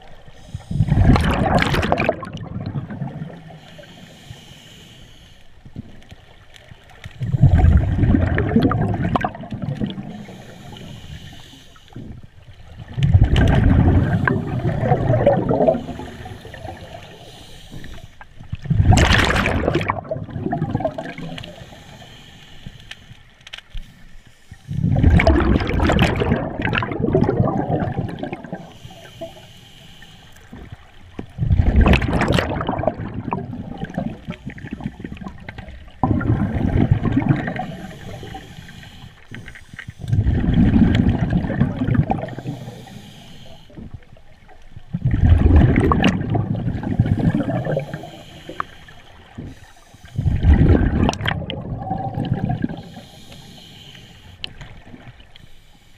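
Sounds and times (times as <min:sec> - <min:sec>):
gurgling rush of bubbles: 0:00.0 - 0:04.0, 0:07.0 - 0:10.4, 0:12.0 - 0:21.8, 0:24.7 - 0:29.3, 0:30.5 - 0:38.5, 0:40.0 - 0:43.0, 0:44.8 - 0:48.6, 0:50.1 - 0:53.2
diver inhaling on regulator: 0:00.2 - 0:01.4, 0:03.4 - 0:05.7, 0:09.9 - 0:12.3, 0:13.9 - 0:18.4, 0:21.1 - 0:25.2, 0:28.1 - 0:30.8, 0:37.3 - 0:40.5, 0:42.0 - 0:44.1, 0:46.9 - 0:50.8, 0:52.6 - 0:55.9.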